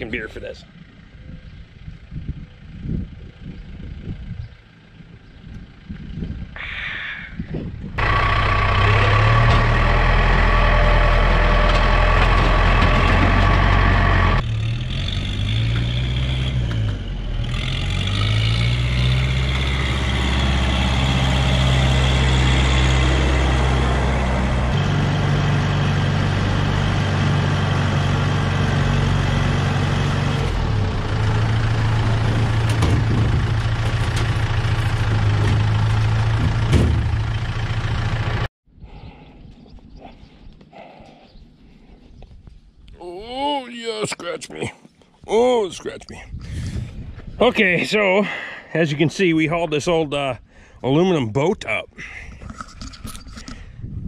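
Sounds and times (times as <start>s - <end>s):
tractor diesel engine running: 0.0s - 6.6s, 7.6s - 38.5s.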